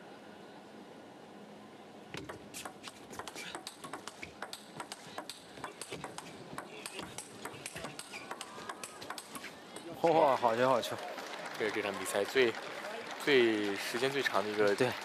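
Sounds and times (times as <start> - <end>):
arena ambience: 0.0 - 15.0
table tennis ball clicks: 2.2 - 9.9.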